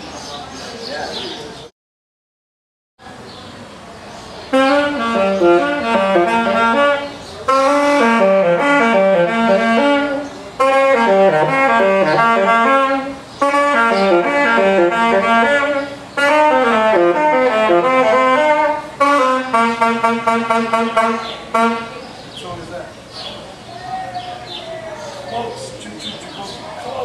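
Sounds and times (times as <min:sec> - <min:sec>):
solo saxophone jazz melody: 0:04.5 - 0:22.0.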